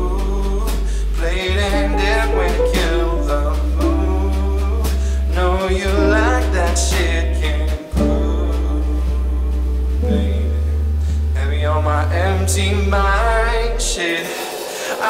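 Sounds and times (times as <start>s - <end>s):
man singing: 0.0s - 10.7s, 11.3s - 15.0s
deep bass notes: 0.0s - 14.0s
keyboard: 0.0s - 14.0s
mallet percussion: 1.6s - 11.4s.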